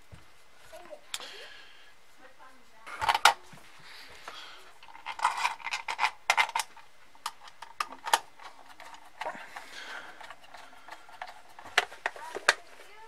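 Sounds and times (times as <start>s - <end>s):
plastic rattles: 2.9s - 3.5s, 4.3s - 13.0s
plastic case clicking: 10.2s - 12.6s.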